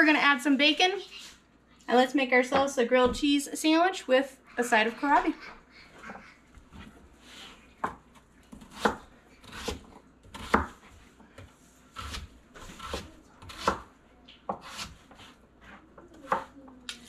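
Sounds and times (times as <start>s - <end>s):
knife chopping on cutting board: 7.8s - 10.8s, 12.0s - 13.9s, 14.5s - 15.3s.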